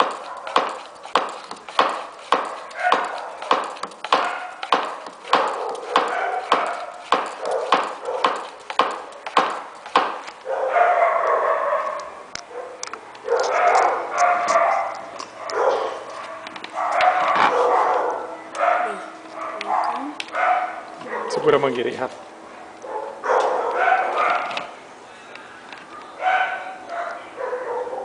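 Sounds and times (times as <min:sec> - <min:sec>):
hand pump strokes: 0:00.0 - 0:10.3.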